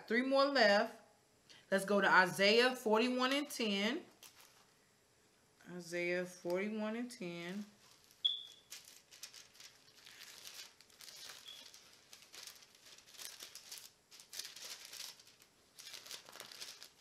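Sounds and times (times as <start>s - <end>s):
thin paper pages rustling: 4.2s - 4.7s, 7.6s - 17.0s.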